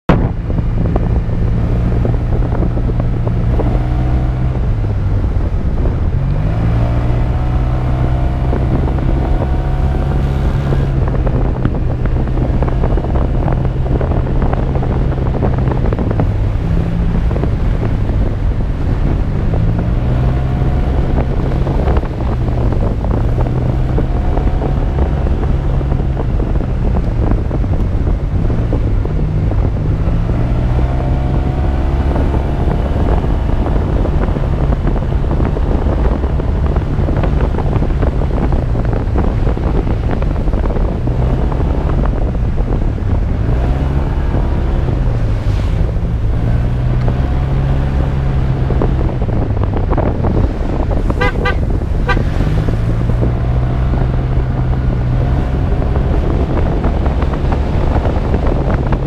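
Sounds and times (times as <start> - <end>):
wind over microphone: 0.0 - 59.0
motorbike engine revving: 27.2 - 59.0.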